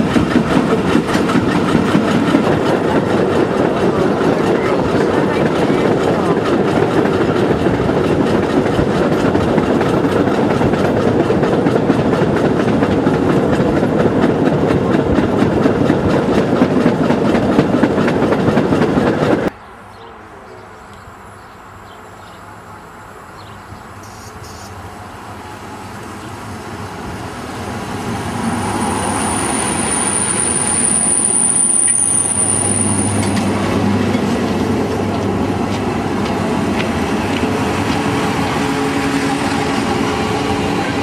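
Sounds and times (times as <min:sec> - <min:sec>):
train wheels rolling on rails: 0:00.0 - 0:19.5, 0:24.7 - 0:41.0
high wheel squeal: 0:28.5 - 0:33.4.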